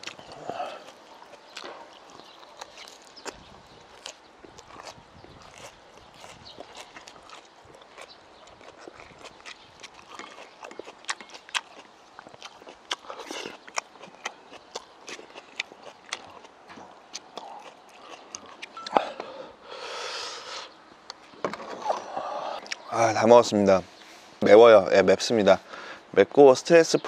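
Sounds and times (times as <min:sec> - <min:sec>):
chewing and mouth clicks: 0:00.0 - 0:19.3, 0:21.1 - 0:22.9.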